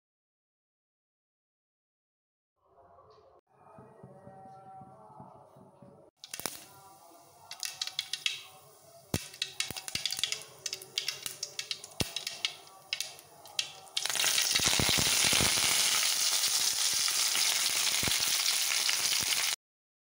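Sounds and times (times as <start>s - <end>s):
seeds popping in hot oil: 6.2s - 6.7s, 7.5s - 19.6s
leaves sizzling in oil: 7.5s - 8.4s, 9.2s - 19.6s.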